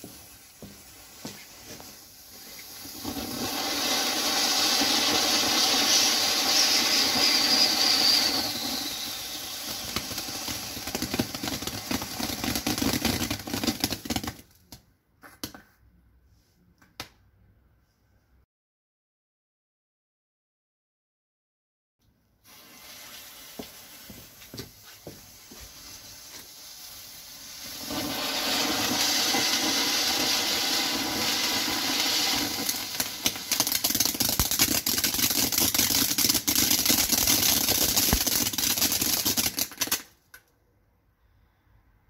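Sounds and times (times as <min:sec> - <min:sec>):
firework fountain hissing: 0:00.0 - 0:14.4, 0:22.4 - 0:40.1
sharp firework crackles: 0:00.0 - 0:14.7, 0:22.5 - 0:40.2.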